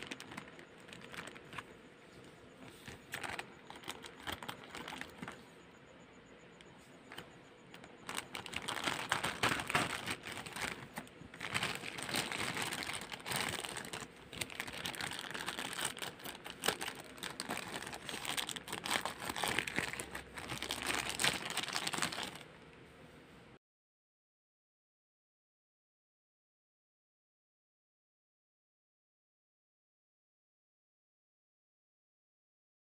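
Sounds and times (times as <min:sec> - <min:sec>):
plastic bag crinkling: 0:00.0 - 0:01.7, 0:02.6 - 0:05.5, 0:07.1 - 0:22.6.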